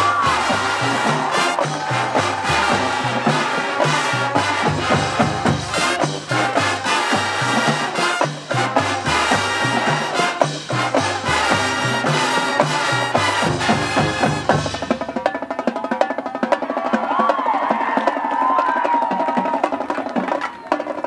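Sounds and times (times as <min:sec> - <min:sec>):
low brass bass line: 0:00.0 - 0:14.9
marching band playing: 0:00.0 - 0:21.0.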